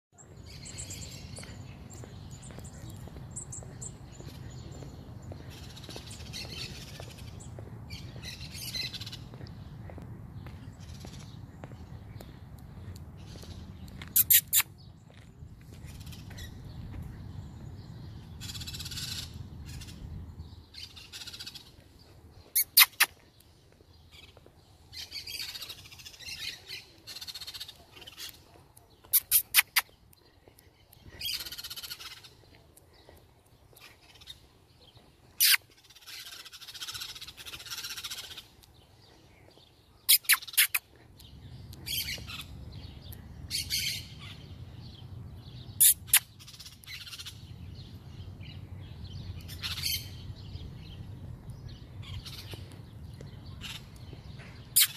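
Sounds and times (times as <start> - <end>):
parrots chattering: 14.0 - 14.7, 22.6 - 23.2, 29.1 - 30.0, 35.4 - 38.5, 40.1 - 40.8, 45.8 - 47.3
parrots squawking: 14.1 - 14.6, 22.6 - 23.1, 35.4 - 38.2, 40.1 - 40.8.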